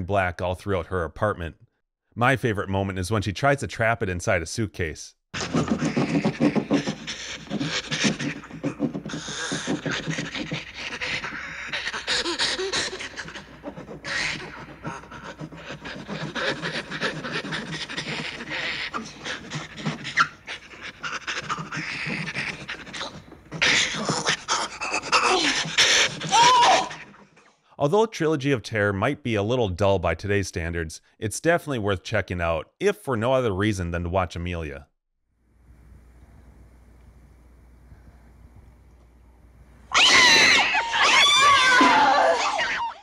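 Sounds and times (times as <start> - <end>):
scrapes and knocks: 5.4 - 24.5
frantic panting and snarling: 5.4 - 27.3.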